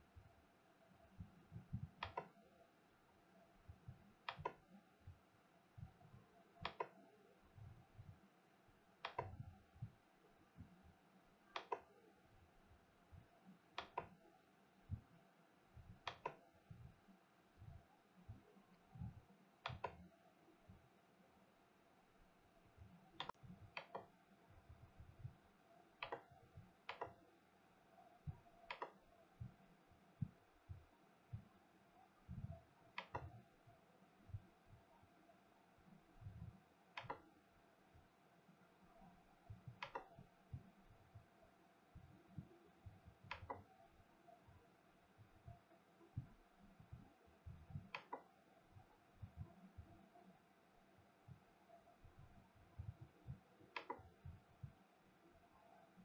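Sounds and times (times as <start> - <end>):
soft low thumps: 1.1 - 2.1, 14.8 - 19.3, 24.5 - 25.6, 28.2 - 28.6, 32.2 - 32.7, 36.2 - 36.6, 48.8 - 50.0, 51.3 - 53.5
faint sharp clicks: 2.0 - 2.4, 6.6 - 7.1, 9.0 - 9.4, 11.5 - 12.0, 16.0 - 16.4, 23.2 - 24.1, 26.0 - 27.2, 32.9 - 33.4, 36.9 - 37.3, 39.7 - 40.2, 43.2 - 43.7, 47.8 - 48.3, 53.0 - 54.3.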